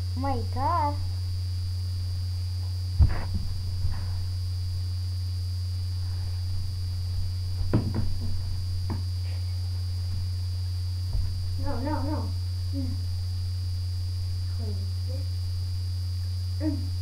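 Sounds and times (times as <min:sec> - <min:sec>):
steady low hum: 0:00.0 - 0:17.0
thumps and knocks on floor: 0:03.0 - 0:04.0, 0:07.2 - 0:09.1, 0:11.1 - 0:11.5.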